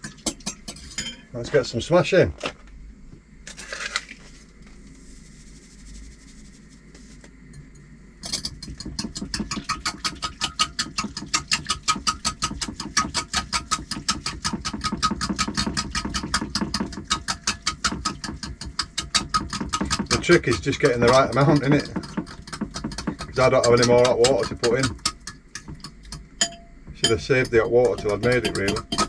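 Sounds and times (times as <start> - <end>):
dry granules rattling in tub: 3.5 - 6.8.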